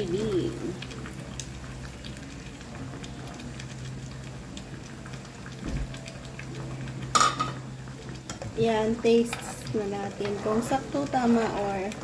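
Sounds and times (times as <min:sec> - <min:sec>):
gravy bubbling in a pan: 0:00.0 - 0:12.0.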